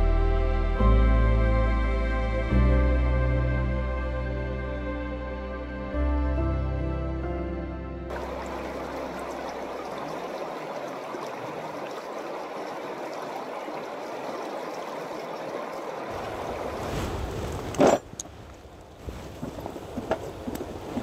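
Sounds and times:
river water rushing: 8.1 - 21.0.

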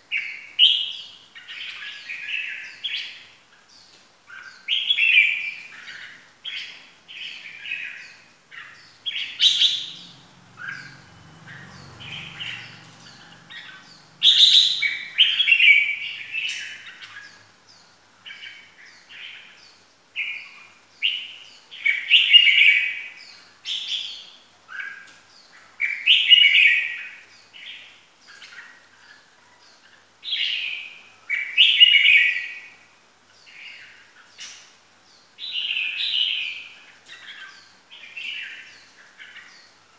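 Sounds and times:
bulbul singing: 0.0 - 32.8.

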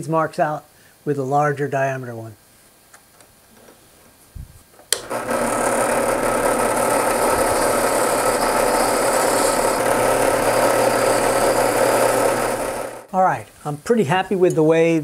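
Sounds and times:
drill press switch click: 4.9 - 5.1
sanding drum grinding wood: 5.0 - 13.1.

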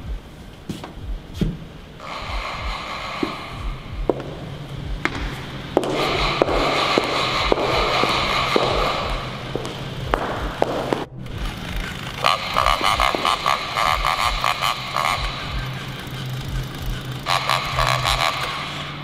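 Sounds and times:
footsteps on wooden floor: 0.1 - 15.7
tense film score drone: 1.0 - 19.0
fast choppy rhythm: 11.4 - 18.5.

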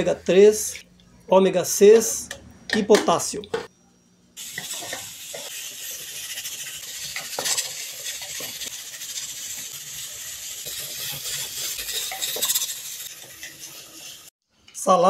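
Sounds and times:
stew sizzling in a pot: 4.4 - 14.4.

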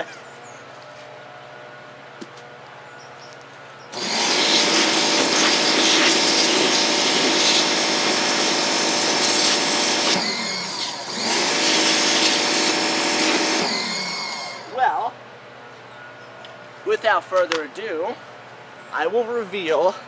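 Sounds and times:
pressure washer jet spraying: 3.9 - 14.7.

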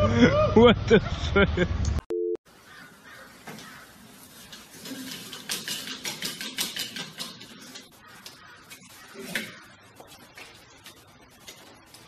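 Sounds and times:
spinner sculpture whirring: 2.8 - 9.3.

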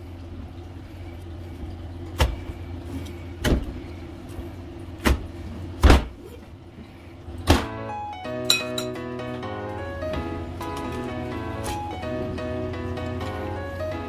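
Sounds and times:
steady low hum: 0.0 - 14.0
kitchen utensils knocking: 8.5 - 9.0.

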